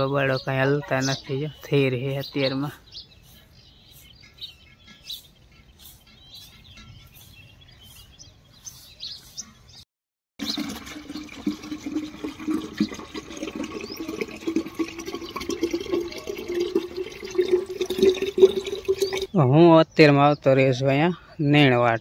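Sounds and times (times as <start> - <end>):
tap water splashing through funnel: 10.4 - 19.3.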